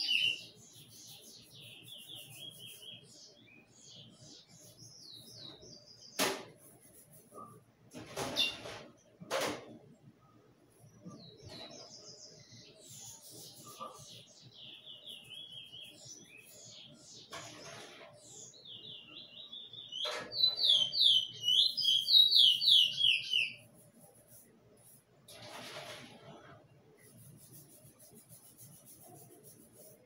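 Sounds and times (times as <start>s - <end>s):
songbird singing: 0.0s - 6.2s, 10.8s - 17.4s, 18.3s - 23.6s.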